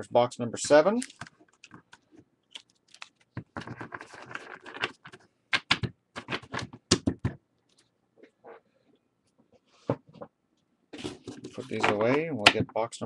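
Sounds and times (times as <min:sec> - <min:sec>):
trading cards rustling: 0:01.0 - 0:05.2
cards tapping and clicking: 0:02.6 - 0:07.4.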